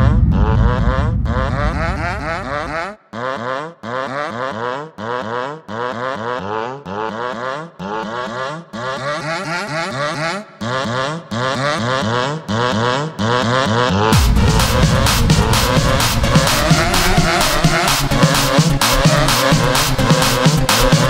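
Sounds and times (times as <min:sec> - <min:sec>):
low bass note: 0:00.0 - 0:02.8, 0:14.1 - 0:19.1
rising synth sweep: 0:00.0 - 0:02.9, 0:14.1 - 0:21.0.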